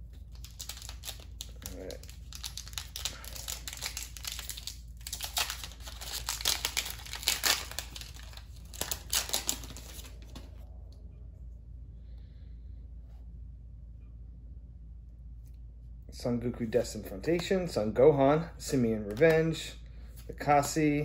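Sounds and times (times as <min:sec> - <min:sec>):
plastic wrapper crinkling and tearing: 0:00.1 - 0:10.5.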